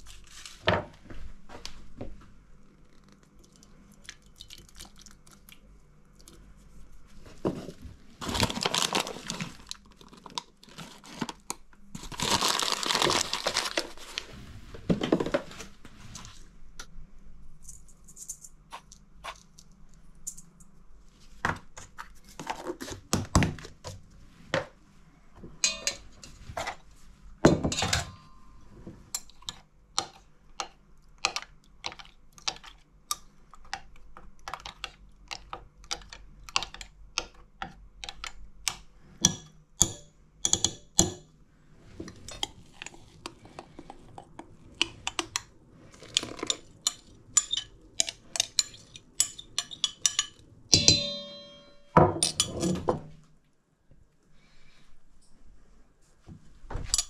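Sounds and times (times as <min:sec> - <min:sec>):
teaspoon clinking against glass: 0:25.6 - 0:26.0, 0:48.6 - 0:52.4.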